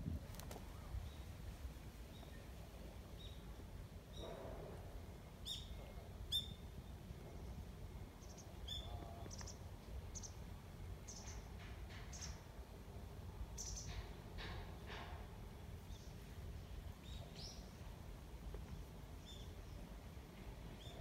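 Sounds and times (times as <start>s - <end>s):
small birds chirping: 8.2s - 11.5s, 13.6s - 14.1s, 15.6s - 17.9s, 18.6s - 21.0s.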